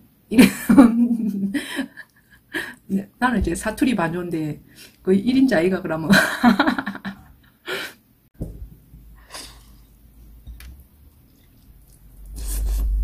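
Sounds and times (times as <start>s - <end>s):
woman laughing breathily: 1.2s - 2.8s
long breath puff: 9.2s - 9.8s.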